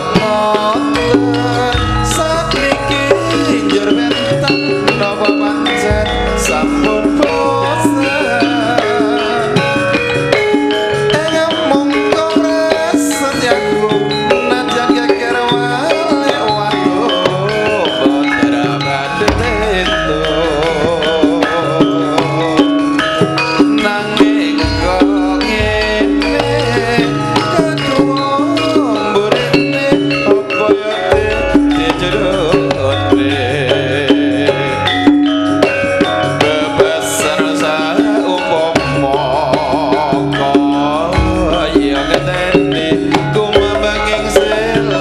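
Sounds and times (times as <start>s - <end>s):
drumming: 0.0s - 45.0s
person singing with vibrato: 0.0s - 45.0s
ringing metal percussion: 0.0s - 45.0s
sustained pitched tones: 0.0s - 45.0s.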